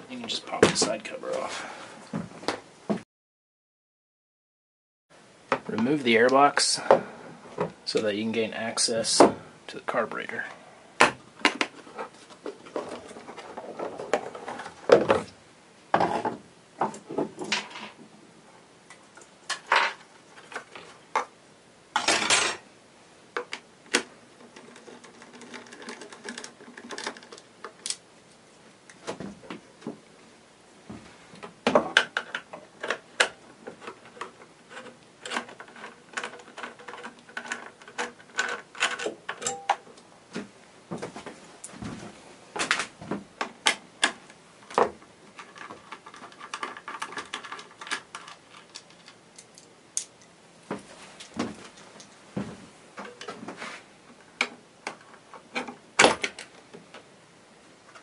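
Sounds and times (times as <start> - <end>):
plastic clicks and rattles: 23.4 - 28.0, 31.9 - 39.6, 42.6 - 50.3.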